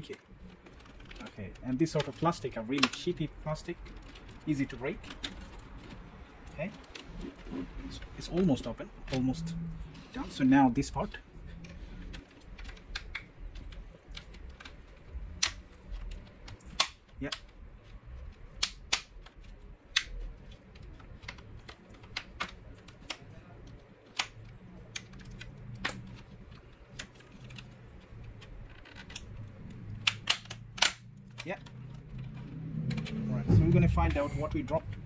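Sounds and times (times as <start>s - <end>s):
plastic clips snapping loose: 15.4s - 17.6s, 18.4s - 33.2s.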